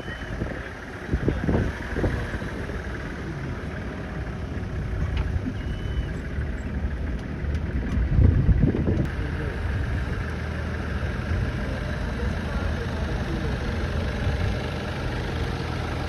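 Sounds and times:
vehicle engine rumbling: 0.0s - 16.0s
whistled bird call: 5.5s - 6.2s.

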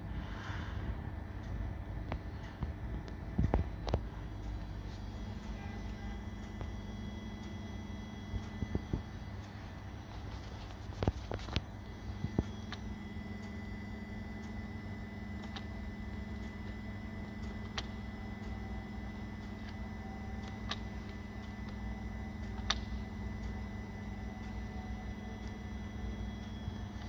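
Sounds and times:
faint high whine: 0.0s - 27.0s
machine electrical hum: 0.0s - 27.0s
small clicks: 15.3s - 18.8s, 19.4s - 23.7s.

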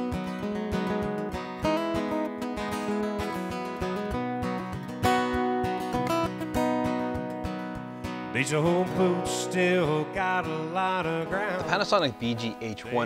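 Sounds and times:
acoustic guitar: 0.0s - 13.0s
person singing: 8.3s - 13.0s.

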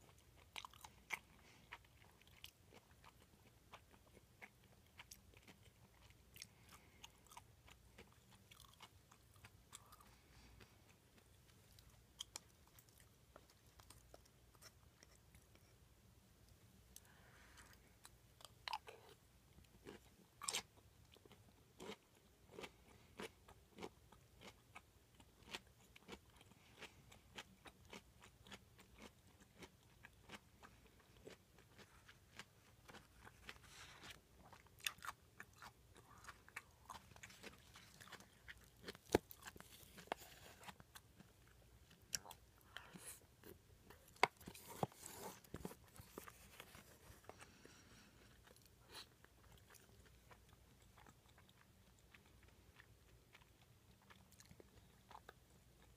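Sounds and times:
person chewing food: 0.0s - 55.9s.

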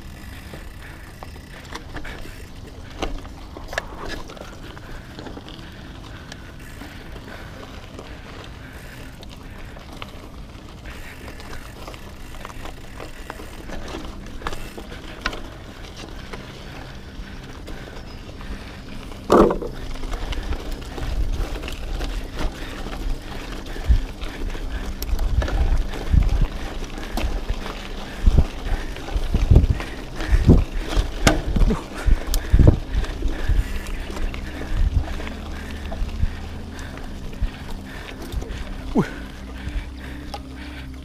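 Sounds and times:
bike frame rattling: 0.0s - 41.0s
bike tyres crunching on gravel: 0.0s - 41.0s
wind buffeting microphone: 12.8s - 40.8s.

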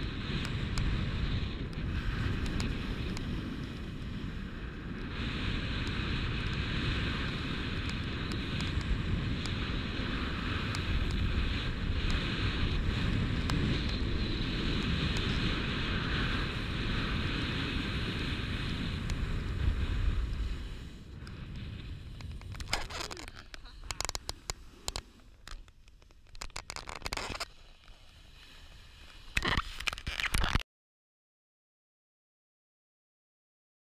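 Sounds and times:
wind buffeting microphone: 0.0s - 25.0s
skis hissing over snow: 0.5s - 30.4s
skis and gear scraping and clicking: 5.7s - 30.6s.

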